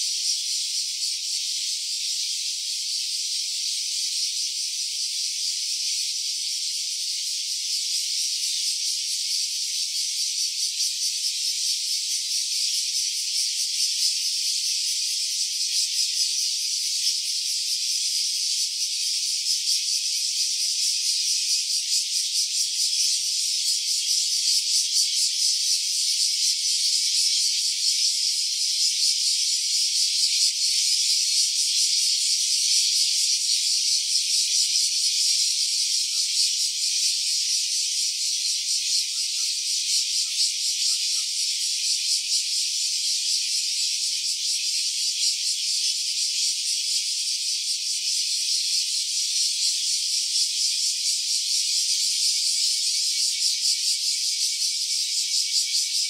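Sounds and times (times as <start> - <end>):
cicadas buzzing: 0.0 - 56.0.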